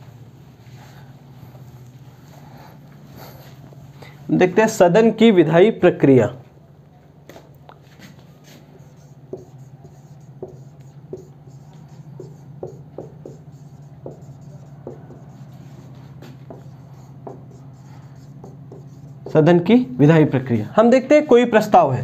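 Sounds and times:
steady low hum: 0:00.0 - 0:22.0
marker writing on whiteboard: 0:07.8 - 0:19.9.

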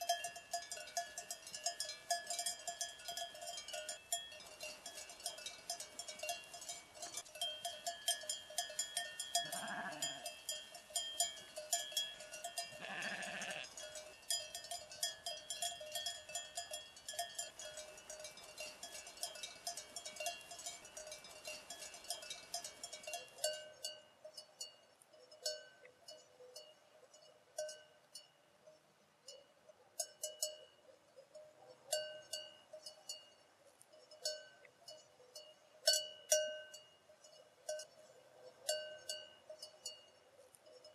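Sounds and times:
sheep bells jingling: 0:00.0 - 0:40.9
sheep bleating: 0:09.4 - 0:10.3, 0:12.7 - 0:13.7.

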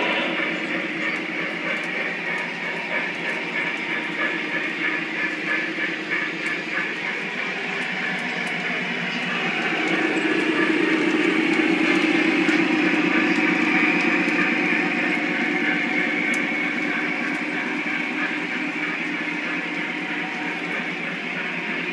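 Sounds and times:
model train rolling on track: 0:00.0 - 0:21.9.

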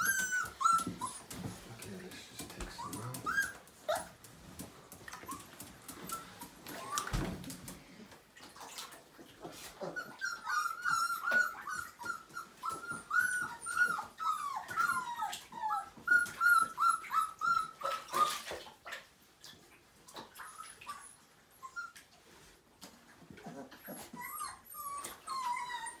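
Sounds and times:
puppies whining: 0:00.0 - 0:07.4, 0:09.6 - 0:18.5, 0:20.2 - 0:22.1, 0:23.4 - 0:26.0.

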